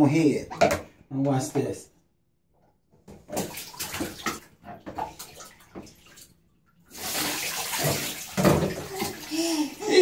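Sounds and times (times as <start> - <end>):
bath water splashing: 3.0 - 10.0.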